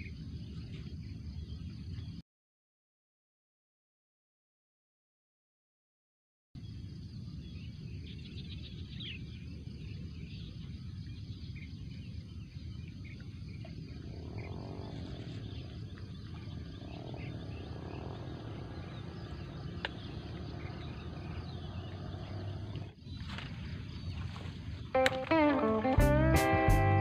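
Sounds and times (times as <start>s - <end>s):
low outdoor rumble: 6.6s - 27.0s.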